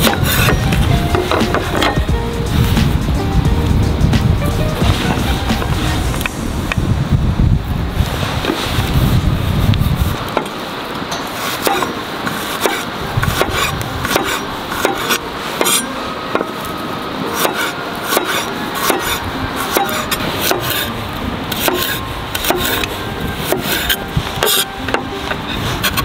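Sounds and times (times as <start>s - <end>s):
steady hiss: 0.0s - 26.0s.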